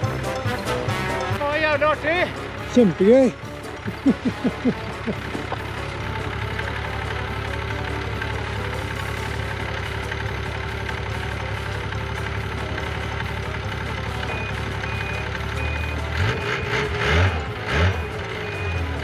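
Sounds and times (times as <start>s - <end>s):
snowmobile engine idling: 0.0s - 19.0s
engine revving in short bursts: 14.2s - 19.0s.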